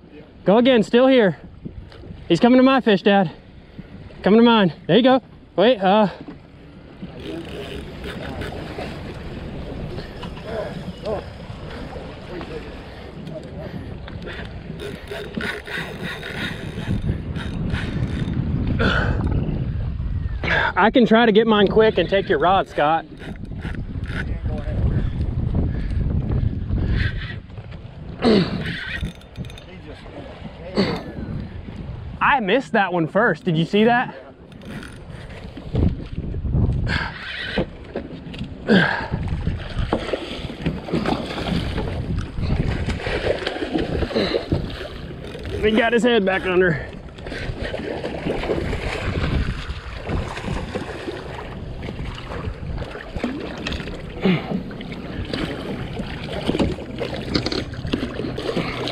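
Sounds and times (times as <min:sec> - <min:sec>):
boat noise: 0:00.0 - 0:58.9
wind rumble: 0:06.4 - 0:32.6, 0:34.4 - 0:58.9
fishing reel ticking and whirring: 0:07.1 - 0:09.3, 0:14.3 - 0:18.4, 0:22.6 - 0:24.6, 0:28.6 - 0:29.8, 0:34.4 - 0:35.6, 0:44.4 - 0:47.6.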